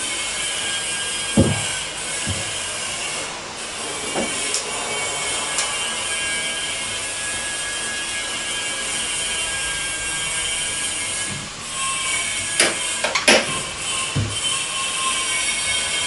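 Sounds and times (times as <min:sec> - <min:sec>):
steady hiss: 0:00.0 - 0:16.0
tools knocking and clattering: 0:12.6 - 0:14.5.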